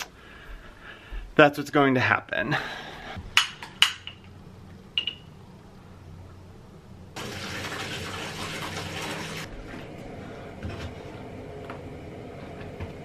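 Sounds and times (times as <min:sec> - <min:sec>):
water pouring into bathtub: 0:07.2 - 0:09.5.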